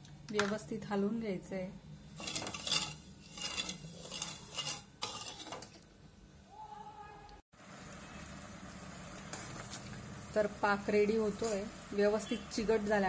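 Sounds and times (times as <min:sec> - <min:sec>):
steel spoon scraping a pan: 0:02.1 - 0:05.8.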